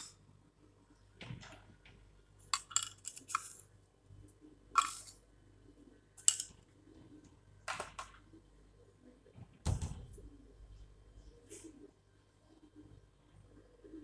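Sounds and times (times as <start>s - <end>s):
plastic spoon scraping and tapping: 2.6s - 3.6s, 4.8s - 5.2s, 6.2s - 6.6s.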